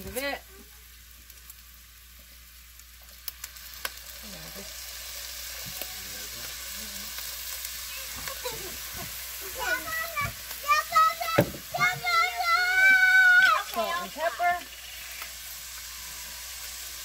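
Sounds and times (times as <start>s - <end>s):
meat and vegetables sizzling: 0.0s - 17.0s.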